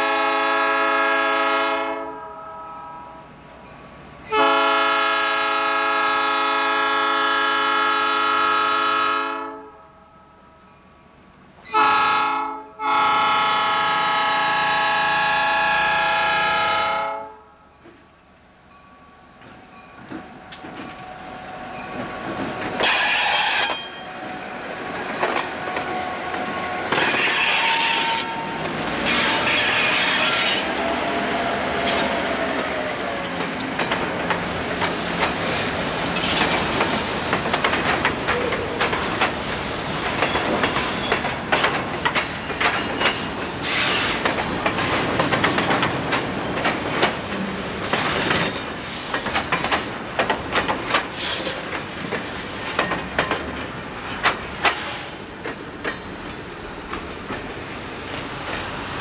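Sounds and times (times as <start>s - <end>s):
freight train wheels clacking: 19.3s - 59.0s.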